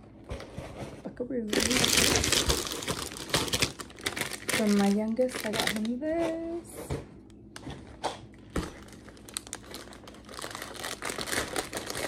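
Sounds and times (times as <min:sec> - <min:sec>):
plastic packaging crinkling: 0:01.4 - 0:06.2, 0:07.6 - 0:12.0.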